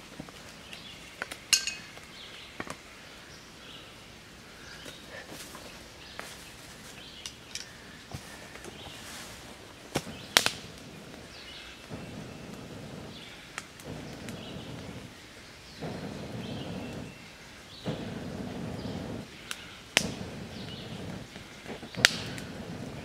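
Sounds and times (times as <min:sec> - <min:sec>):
breaths blown into fire: 0:08.0 - 0:23.0
sticks clicking and cracking: 0:09.9 - 0:10.8, 0:21.3 - 0:22.5.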